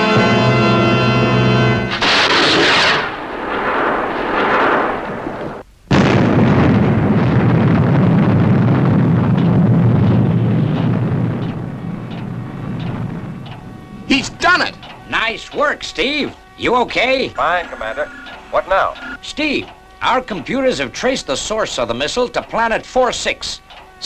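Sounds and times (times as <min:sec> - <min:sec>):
rushing blast: 0:00.0 - 0:22.1
loud explosion with deep rumble: 0:02.0 - 0:14.8.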